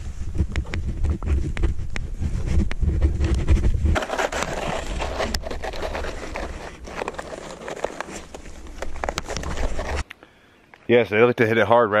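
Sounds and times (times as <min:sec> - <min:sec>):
snowshoes crunching on snow: 0:04.0 - 0:10.0.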